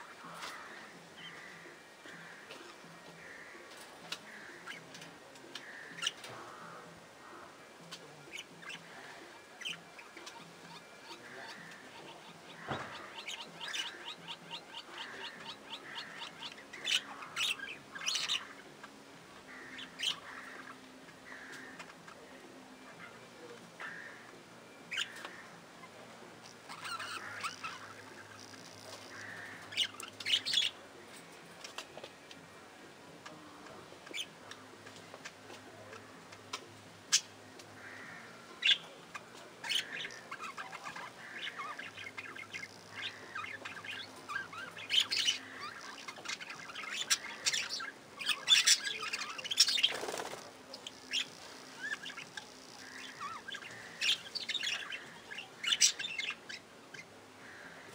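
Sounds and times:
budgerigars chattering: 9.6 - 18.9, 24.9 - 30.8, 35.2 - 57.9.

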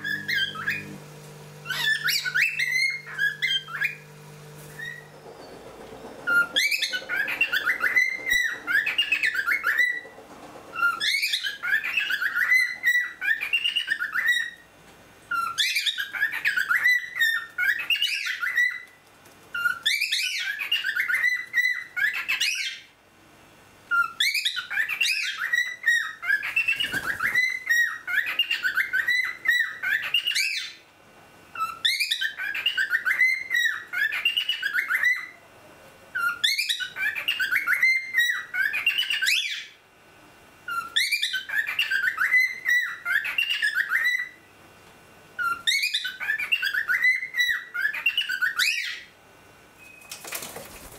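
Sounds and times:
cockatiel whistling: 0.0 - 1.0, 1.6 - 4.0, 4.7 - 5.6, 6.2 - 10.1, 10.8 - 14.6, 31.6 - 35.4, 36.2 - 39.7, 40.7 - 44.4, 45.4 - 49.0.

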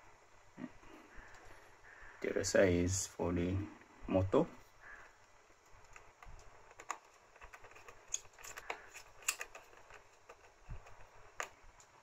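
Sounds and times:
faint clicks and taps of wires: 1.1 - 1.5, 4.9 - 12.0.

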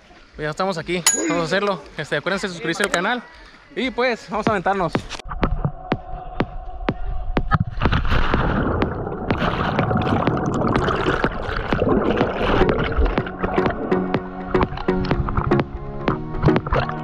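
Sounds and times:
water splashing and churning: 7.5 - 17.0.

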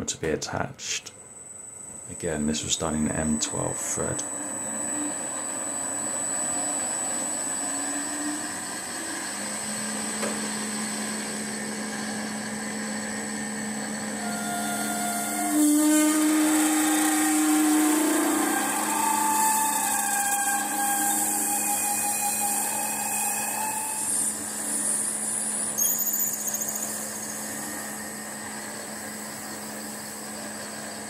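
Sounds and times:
steady ringing note: 1.0 - 30.8
lathe motor hum: 1.9 - 31.0
lathe drilling into brass bar: 13.8 - 29.0.

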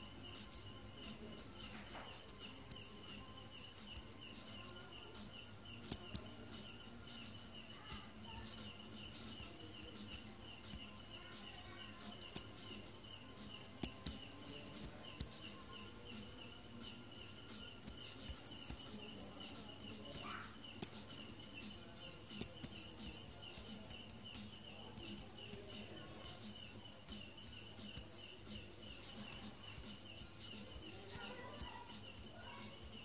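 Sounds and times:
small animal chirping: 0.0 - 33.0
sharp clicks: 7.2 - 15.7, 17.5 - 33.0.

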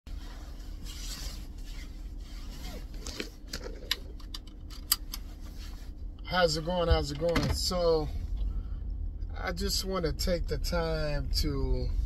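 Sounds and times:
low steady hum: 0.1 - 12.0
seatbelt buckling clicks: 3.0 - 5.3.

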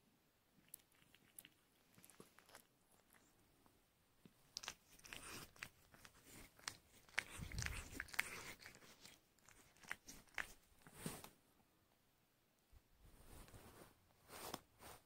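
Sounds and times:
kitten suckling wet clicks: 0.6 - 3.3, 4.5 - 10.6.

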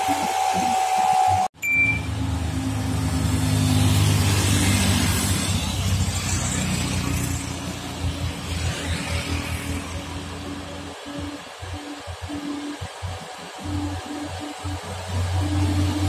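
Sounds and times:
truck diesel engine humming: 0.0 - 16.0
motorcycles passing: 2.0 - 16.0
music tone: 9.8 - 16.0.

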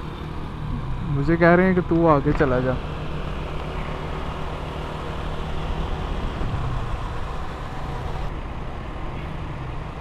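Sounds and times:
motorcycle engine cruising: 0.0 - 8.4
road noise: 0.0 - 10.0
wind noise: 3.4 - 8.4.

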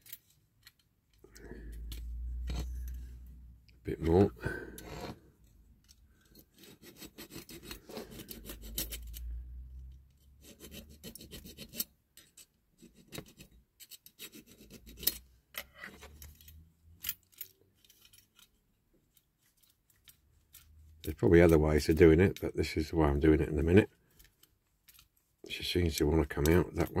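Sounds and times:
hand file rasping on metal: 6.5 - 9.3, 10.4 - 11.9.

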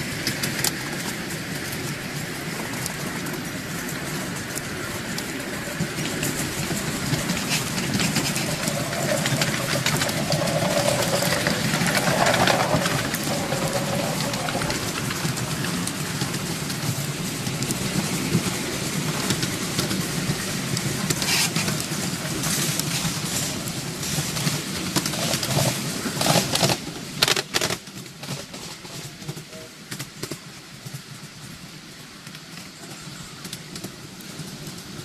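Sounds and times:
train wheels clattering on rails: 0.0 - 35.0.

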